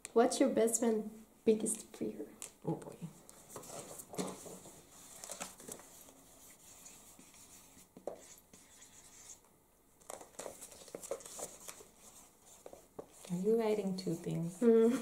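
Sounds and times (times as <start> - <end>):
paper pages rustling: 3.3 - 9.4, 10.0 - 14.2
pen scratching on paper: 5.9 - 9.4.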